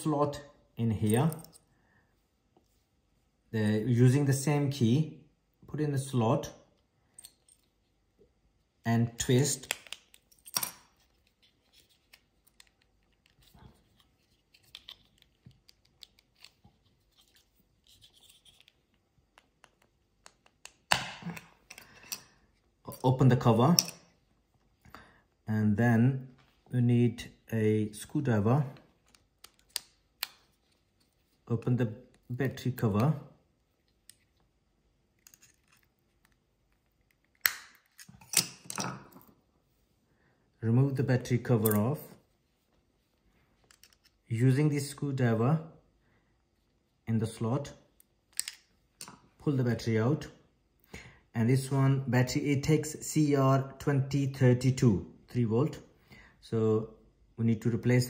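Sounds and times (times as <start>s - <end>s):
plastic key fob clicks and scraping: 9.6s - 19.0s
plastic snap: 37.4s - 38.6s.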